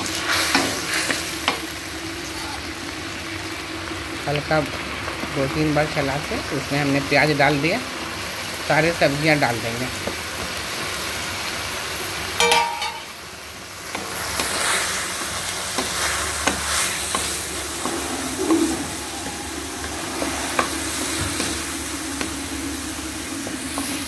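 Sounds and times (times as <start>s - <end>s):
vegetables sizzling in hot oil: 0.0s - 24.0s.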